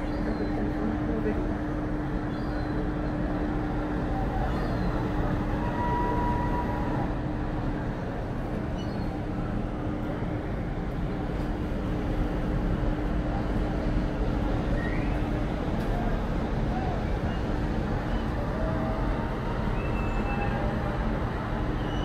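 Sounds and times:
ship machinery rumble: 0:00.0 - 0:22.0.

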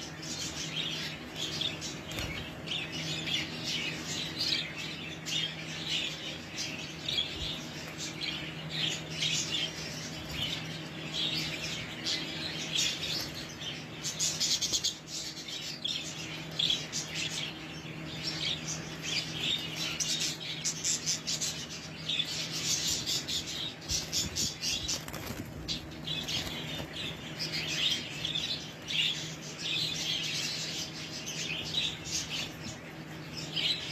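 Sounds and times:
budgerigars chirping and warbling: 0:00.0 - 0:33.9
steady low hum: 0:00.0 - 0:33.9
wings flapping: 0:23.9 - 0:27.5.

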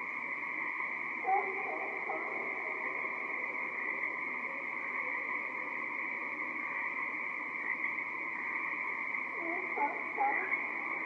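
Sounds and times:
chorus of tree frogs: 0:00.0 - 0:11.0.

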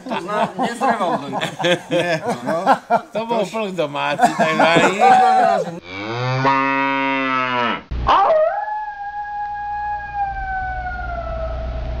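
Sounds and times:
cow mooing: 0:05.8 - 0:07.8
animal howl: 0:08.1 - 0:11.9
low steady rumble: 0:10.4 - 0:12.0.

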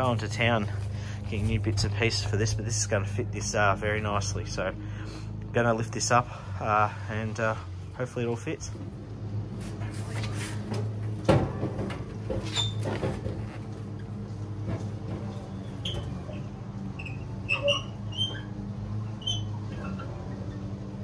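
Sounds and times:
short high squeaks: 0:12.5 - 0:12.9, 0:15.5 - 0:20.7.

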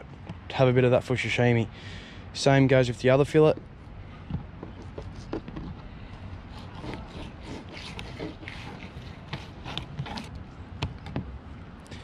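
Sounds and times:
knife scraping through fish fillet: 0:06.5 - 0:10.3.

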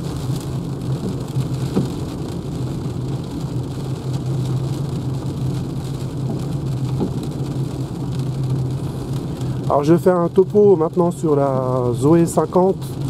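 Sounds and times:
rain hiss: 0:00.0 - 0:13.0
car cabin hum: 0:04.8 - 0:10.9.

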